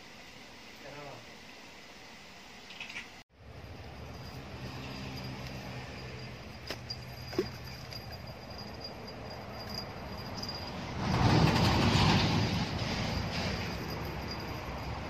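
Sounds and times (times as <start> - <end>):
water splashing from thrashing fish: 7.2 - 8.2.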